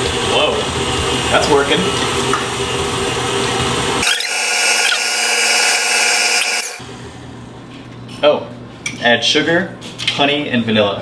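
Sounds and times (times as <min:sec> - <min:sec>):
stand mixer motor whine: 0:00.0 - 0:06.8.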